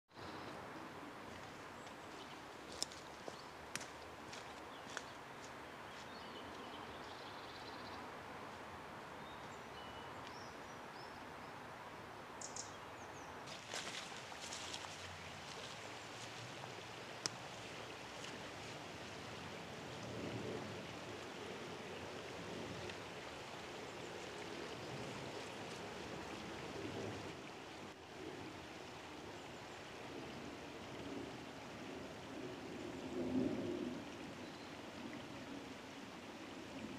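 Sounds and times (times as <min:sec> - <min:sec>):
stream water flowing: 0:00.1 - 0:36.9
footsteps on leaf litter: 0:13.5 - 0:16.5.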